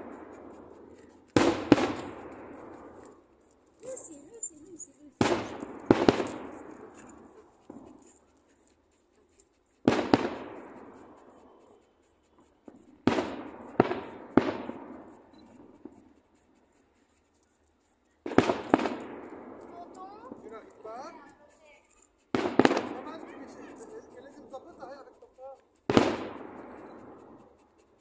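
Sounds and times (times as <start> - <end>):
firework shells bursting: 0.0 - 3.2, 5.2 - 7.9, 9.8 - 11.4, 12.7 - 16.1, 18.2 - 20.6, 22.3 - 23.8, 25.9 - 27.2.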